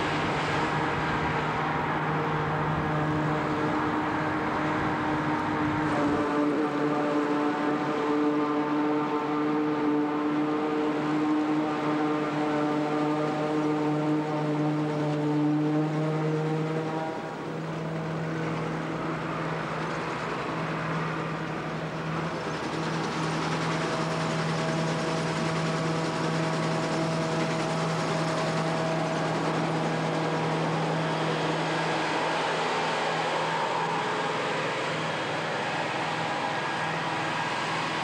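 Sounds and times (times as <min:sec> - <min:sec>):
farm machinery engine drone: 0:00.0 - 0:38.0
high-pitched machine whine: 0:00.0 - 0:38.0.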